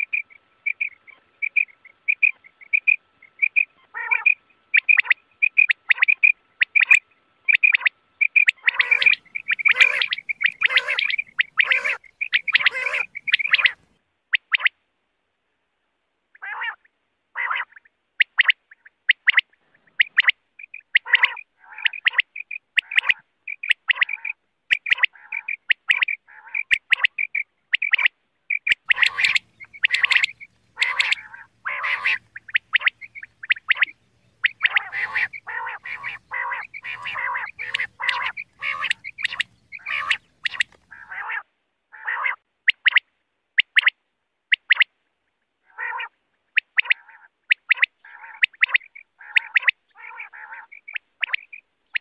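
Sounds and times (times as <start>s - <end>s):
quail calling: 0.0s - 14.8s, 16.3s - 43.0s, 45.6s - 52.0s
faint low hum: 28.4s - 41.2s.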